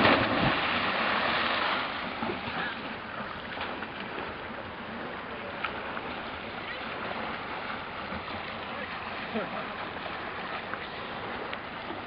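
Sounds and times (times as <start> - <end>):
people splashing into sea: 0.0 - 5.0
water washing: 0.0 - 12.0.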